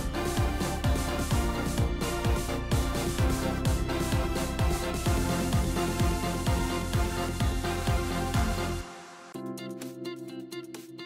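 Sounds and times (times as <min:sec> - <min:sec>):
steady kick drum beat: 0:00.0 - 0:08.8
electronic music: 0:00.0 - 0:11.0.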